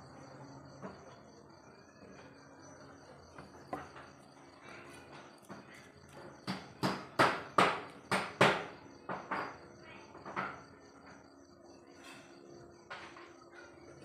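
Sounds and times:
crickets trilling: 0.0 - 14.0
sharp knocks: 6.4 - 9.6.

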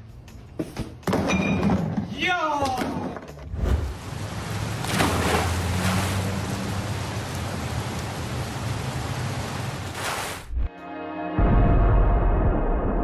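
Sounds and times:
heavy rain pouring: 3.9 - 10.5.

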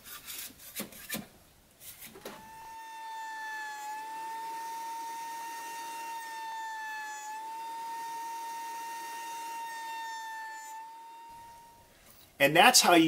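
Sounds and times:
thickness planer whining: 2.2 - 12.2.

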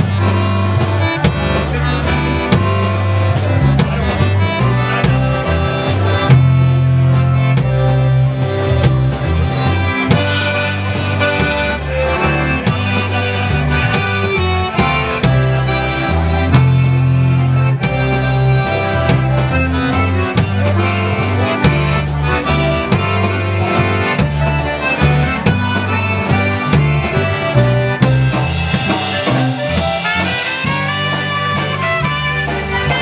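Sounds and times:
clarinet: 0.0 - 33.0
concertina lead: 0.0 - 33.0
drum kit: 0.0 - 33.0
electric bass: 0.0 - 33.0
trumpet: 9.6 - 33.0.

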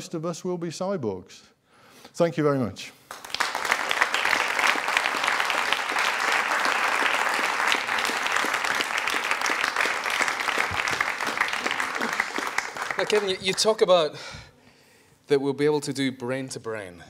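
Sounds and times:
audience applauding: 3.1 - 13.9.

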